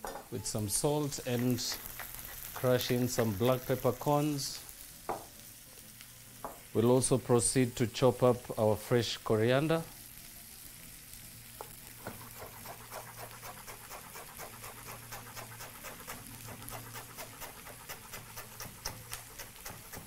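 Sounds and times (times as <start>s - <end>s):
knife chopping on wooden board: 12.0s - 20.0s.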